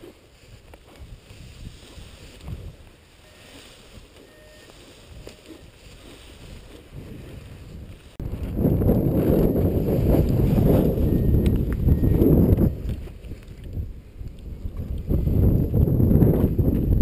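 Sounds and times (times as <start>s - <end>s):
faint rustles and clicks: 0.0s - 8.6s
wind buffeting microphone: 0.0s - 17.0s.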